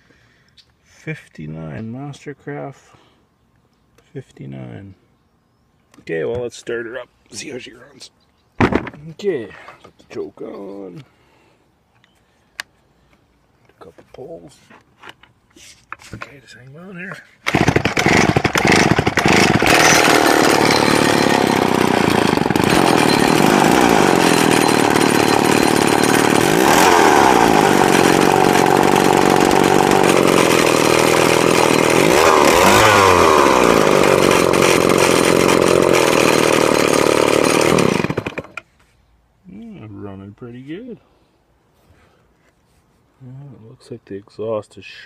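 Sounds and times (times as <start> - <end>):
chainsaw running loud: 17.5 - 38.6.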